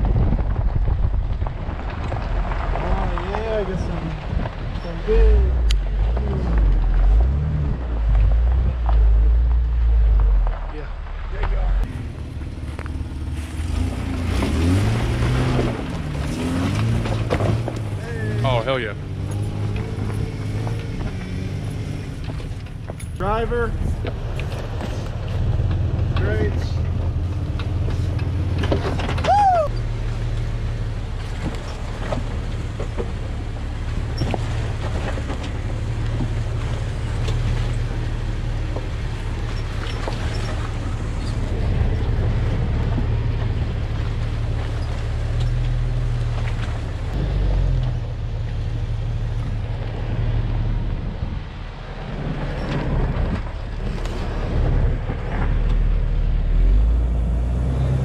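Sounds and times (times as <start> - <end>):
knocks from rough ground: 0.0 - 5.0, 5.6 - 18.0, 19.1 - 29.4
tyres crunching over rocks: 0.0 - 50.2
car engine at low speed: 0.0 - 58.0.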